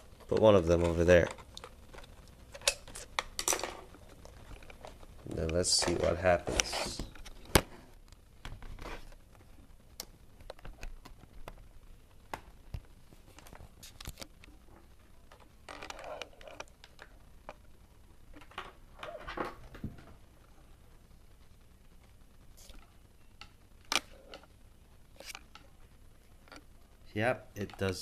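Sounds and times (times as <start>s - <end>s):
rustling and brushing: 4.0s - 7.9s.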